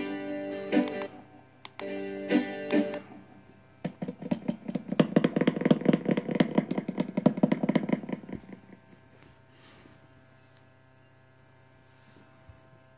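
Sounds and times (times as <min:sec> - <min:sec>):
music from small speaker: 0:00.0 - 0:03.3.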